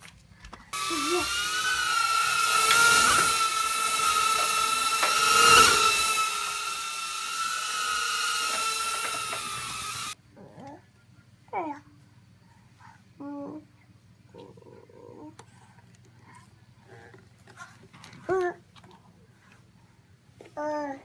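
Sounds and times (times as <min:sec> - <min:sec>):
micro drone motors whining: 0:00.8 - 0:10.2.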